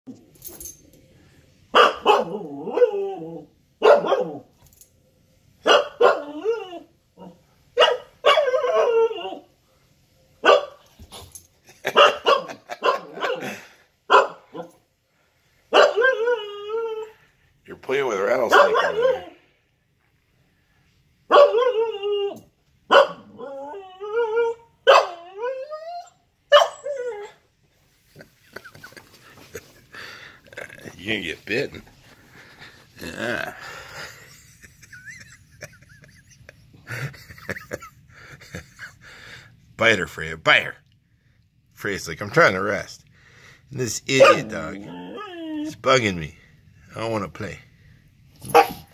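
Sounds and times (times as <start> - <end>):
puppy barking and yowling: 1.8 - 4.5, 5.6 - 9.5, 11.8 - 14.8, 15.7 - 17.1, 18.5 - 19.4, 21.3 - 27.4, 44.2 - 45.8
puppy giving wavering barks: 3.8 - 4.4, 18.5 - 19.4, 44.2 - 45.8.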